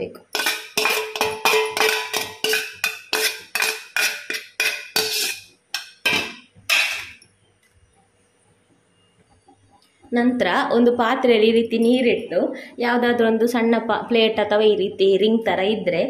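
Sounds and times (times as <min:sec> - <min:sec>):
spoon clinking on steel bowl: 0:00.3 - 0:07.2.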